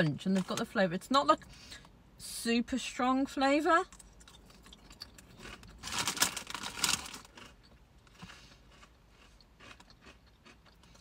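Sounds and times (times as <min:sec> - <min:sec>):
crisps crunching: 0:04.2 - 0:11.0
hand rummaging in crisp packet: 0:05.4 - 0:07.5.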